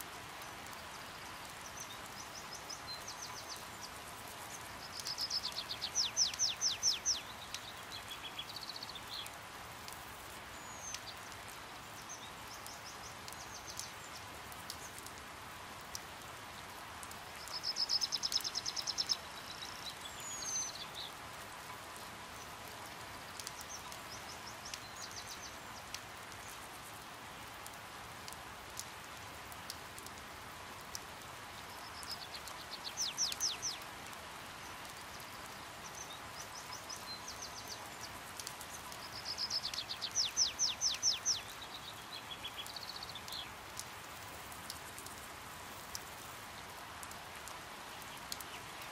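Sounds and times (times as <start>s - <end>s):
rain hiss: 0.0s - 48.9s
hummingbirds twittering trills: 0.9s - 9.4s, 31.8s - 33.8s, 35.8s - 43.5s.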